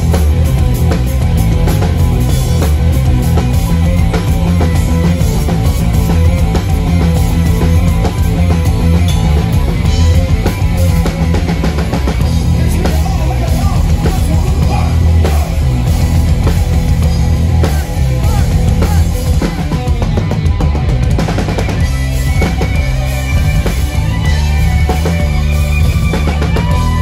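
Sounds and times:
rock band playing: 0.0 - 27.0.

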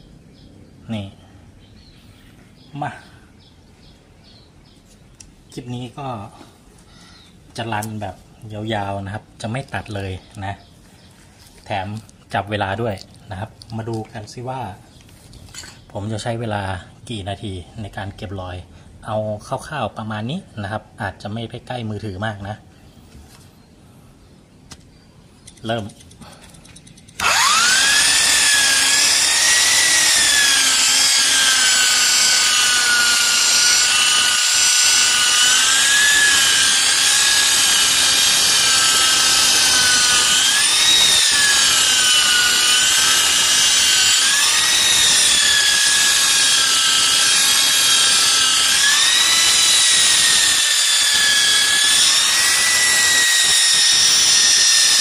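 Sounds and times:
electric polisher whining on glass: 27.2 - 55.0.

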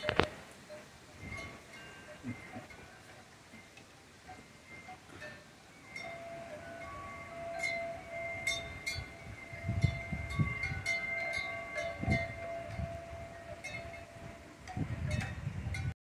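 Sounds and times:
wind chimes ringing: 0.0 - 16.0
wind buffeting microphone: 1.2 - 2.7, 6.0 - 16.0
gusty storm wind: 6.8 - 16.0.

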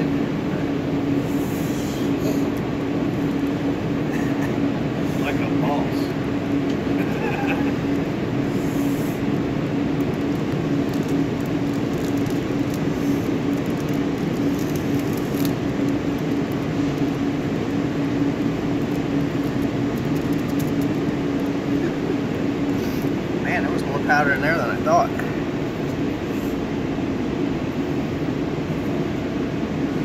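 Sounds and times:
mechanical hum of machinery: 0.0 - 30.0
foil chip packet crinkling: 10.4 - 16.6.

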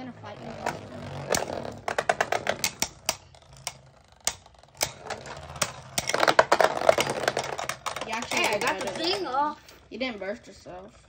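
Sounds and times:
spinning tops clacking: 1.3 - 9.8.

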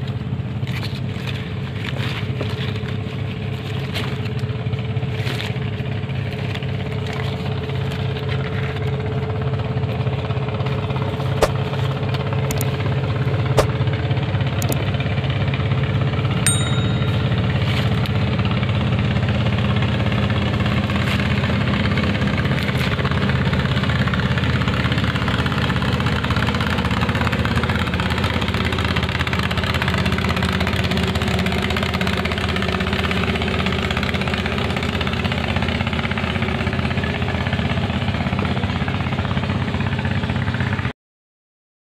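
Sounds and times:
small boat engine running: 0.0 - 40.9.

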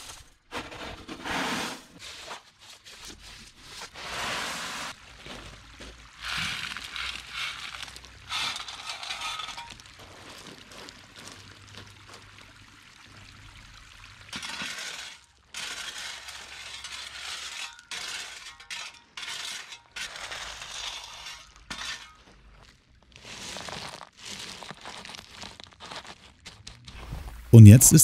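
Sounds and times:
metal tool scraping gravel: 3.9 - 5.0, 6.3 - 10.2, 14.4 - 26.4.

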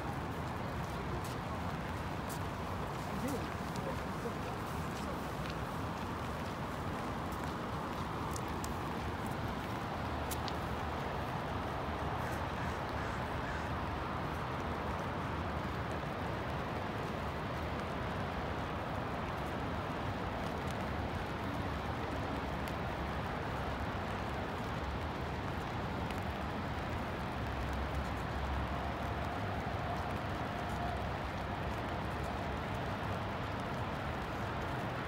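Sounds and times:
rain hissing: 0.0 - 12.2
traffic on wet roads: 0.0 - 35.0.

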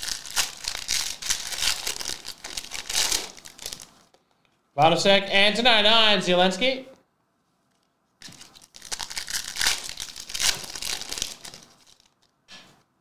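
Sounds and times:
foil wrapper crinkling: 0.0 - 4.1, 7.7 - 12.3.

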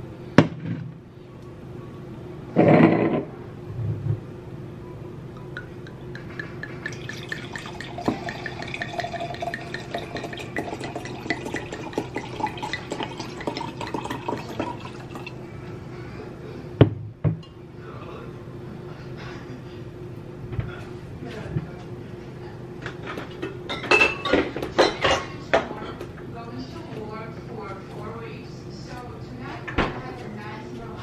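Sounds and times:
wine pouring into glass: 5.4 - 15.4.

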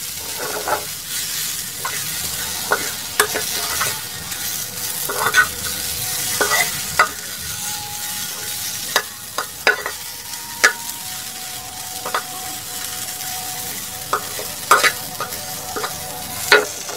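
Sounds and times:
metal spatula scraping pan: 0.0 - 10.9, 12.0 - 16.9
okra sizzling in oil: 0.0 - 16.9.

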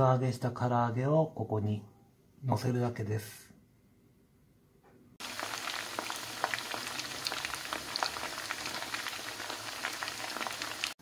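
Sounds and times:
chicken deep-frying in hot oil: 5.2 - 11.0.

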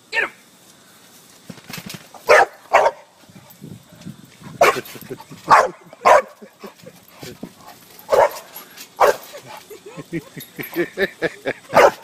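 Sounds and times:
dog barking: 2.3 - 3.1, 4.6 - 4.9, 5.5 - 6.4, 8.1 - 9.3, 11.7 - 12.0.

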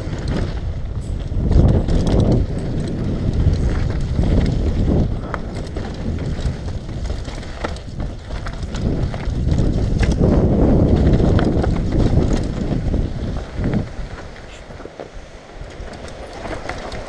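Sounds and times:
bike clicks and rattles: 0.0 - 17.0
bike tyres rumbling on dirt: 0.0 - 17.0
wind buffeting microphone: 0.0 - 17.0.

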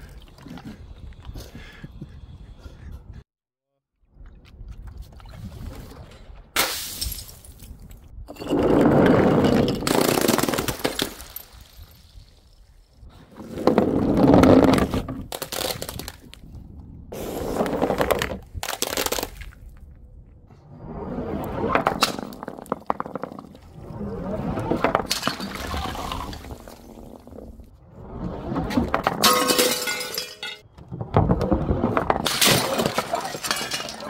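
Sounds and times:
glass smashing: 29.2 - 30.6, 32.3 - 34.0.

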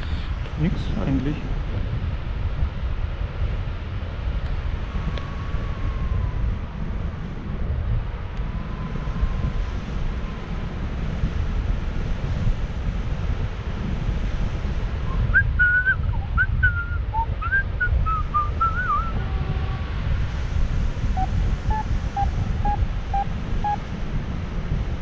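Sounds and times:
wind rushing over microphone: 0.0 - 25.0
wavering whistled notes: 15.1 - 19.2, 21.2 - 23.8.

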